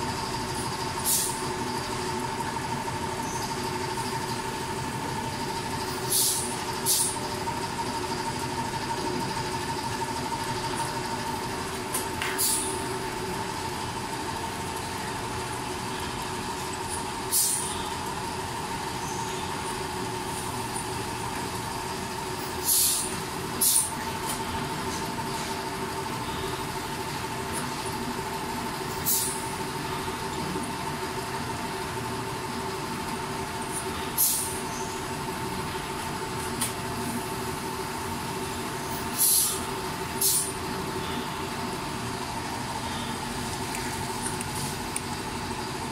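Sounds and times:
pneumatic air exhaust hisses: 0:01.0 - 0:01.5, 0:05.9 - 0:07.2, 0:12.2 - 0:12.8, 0:17.2 - 0:17.8, 0:22.4 - 0:24.0, 0:28.9 - 0:29.5, 0:33.7 - 0:34.9, 0:38.8 - 0:40.6.

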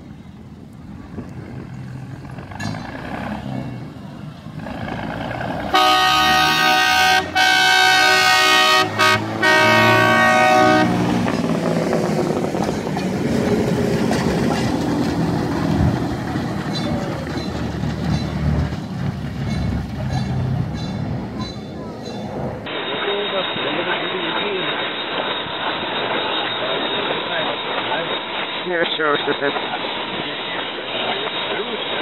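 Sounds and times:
rail motorcar engine rumbling: 0:00.0 - 0:32.0
loud vehicle horn: 0:05.7 - 0:11.4.

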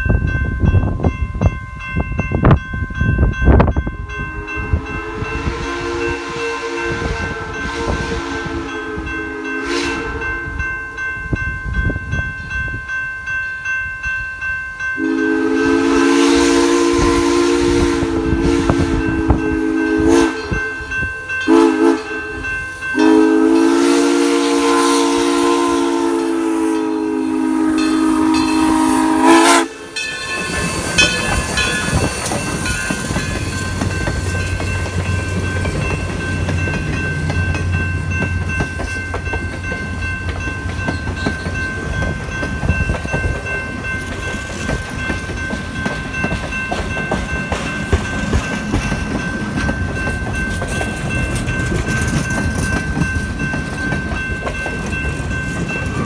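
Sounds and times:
crossing bell ringing: 0:00.0 - 0:56.0
steam whistle: 0:04.2 - 0:10.6, 0:15.0 - 0:20.8, 0:21.5 - 0:31.9
train cars clicking over rail joints: 0:30.0 - 0:56.0.

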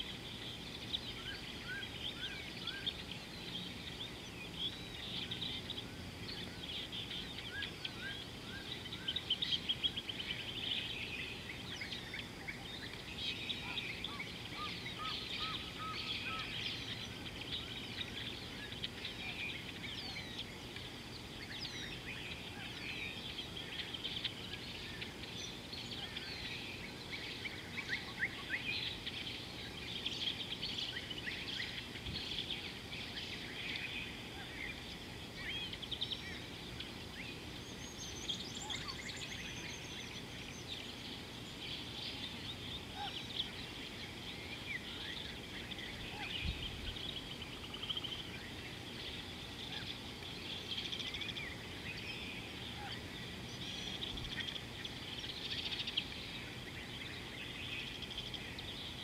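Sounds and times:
birds chirping and trilling: 0:00.0 - 0:59.0
faint low background noise: 0:00.0 - 0:59.0.

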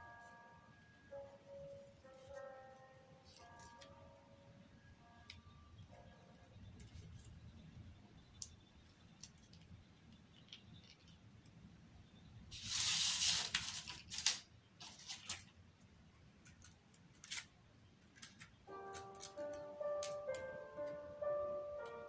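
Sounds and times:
paper leaves rustling and crinkling: 0:12.5 - 0:15.6.

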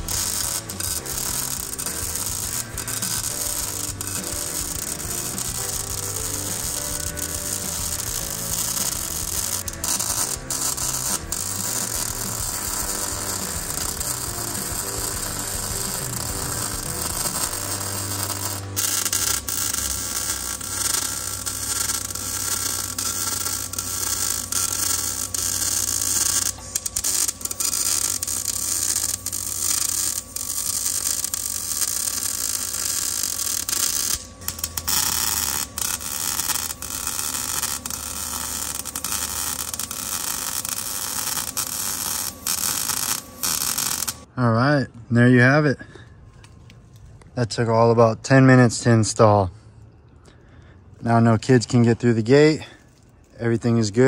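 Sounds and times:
welder crackling sizzle: 0:00.0 - 0:44.3, 0:51.0 - 0:54.0
steady low hum: 0:00.0 - 0:54.0.

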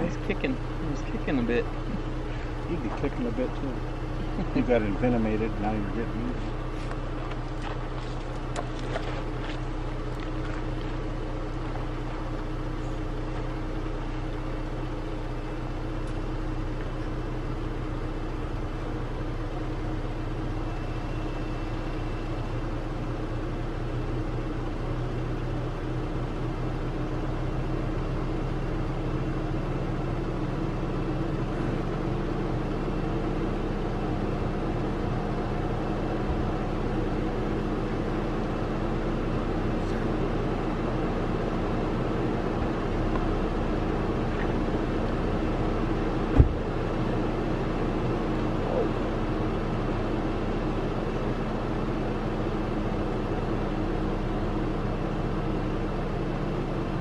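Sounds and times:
vehicle engine idling: 0:00.0 - 0:57.0.

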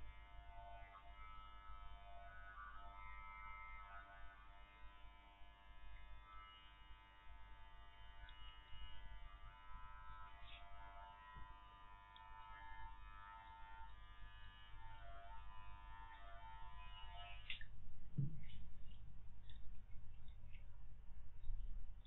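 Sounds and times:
electric hair clipper buzzing: 0:00.1 - 0:17.5.

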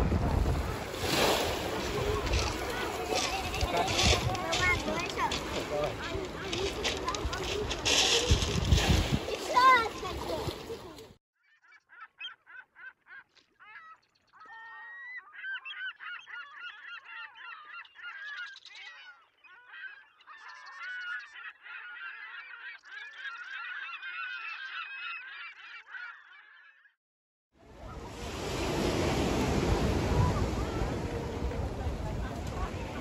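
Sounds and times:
flock of birds calling: 0:00.6 - 0:26.9.

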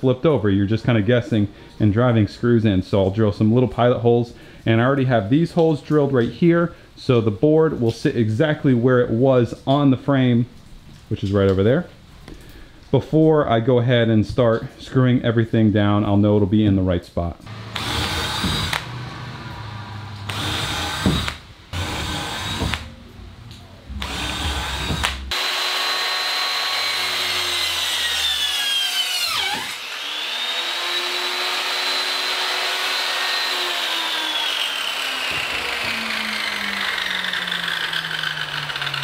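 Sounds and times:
cordless drill boring wood: 0:17.5 - 0:22.8, 0:24.0 - 0:39.0
circular saw cutting wood: 0:17.5 - 0:22.9, 0:24.0 - 0:39.0.

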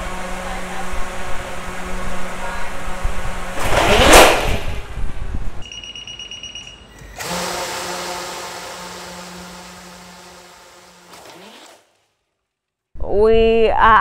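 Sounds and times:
steady hum with rushing: 0:00.0 - 0:11.9
loud rushing whoosh: 0:01.0 - 0:05.6
short electronic beeping: 0:05.6 - 0:07.3.

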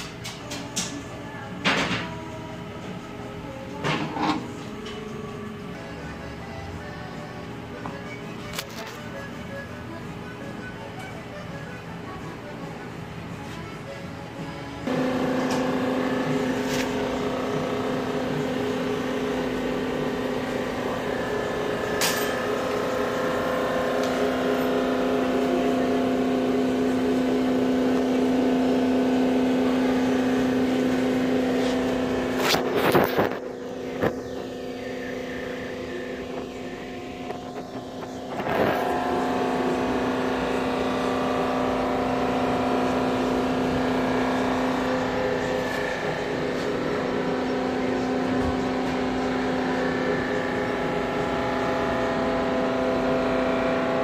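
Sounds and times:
machine motor humming: 0:14.8 - 0:54.0.

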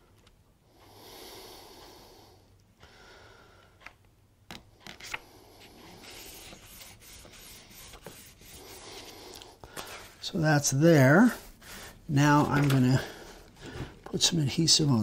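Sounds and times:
faint nose breathing: 0:00.7 - 0:03.8, 0:08.4 - 0:10.2, 0:11.2 - 0:12.1
paper rustling: 0:05.9 - 0:09.1.

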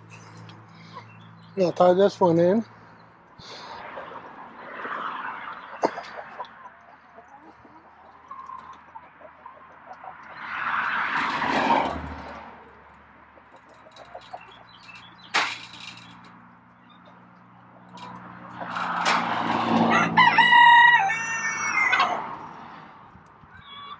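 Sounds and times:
hens clucking: 0:03.4 - 0:22.6, 0:23.3 - 0:23.9
rustling on wire fence: 0:10.8 - 0:22.3
sharp clack: 0:15.0 - 0:16.3.

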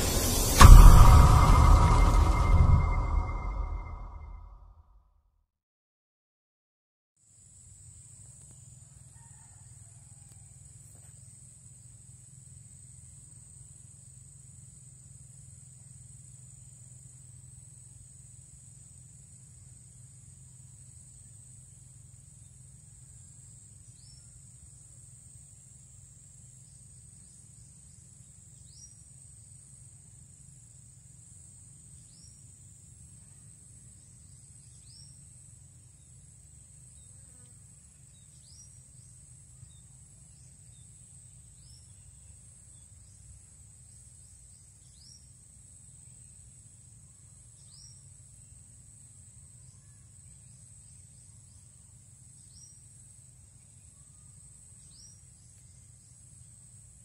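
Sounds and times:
low rumble: 0:00.0 - 0:04.6
short high chirp: 0:00.0 - 0:04.6.

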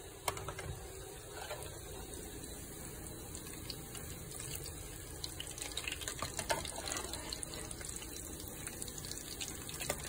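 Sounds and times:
food sizzling in hot oil: 0:00.9 - 0:10.0
oil crackling and popping: 0:03.3 - 0:10.0.

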